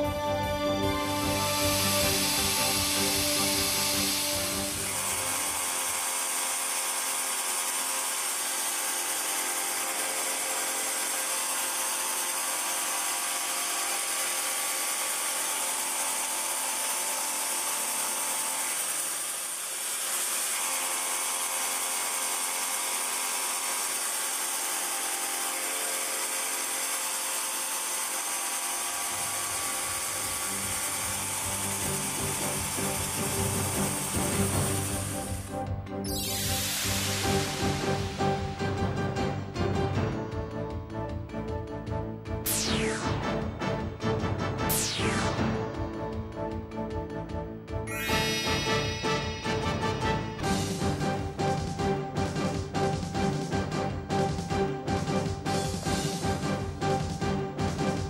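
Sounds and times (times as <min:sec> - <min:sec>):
high machining whine: 0:00.6 - 0:38.5, 0:47.9 - 0:50.7
hiss: 0:01.0 - 0:06.2.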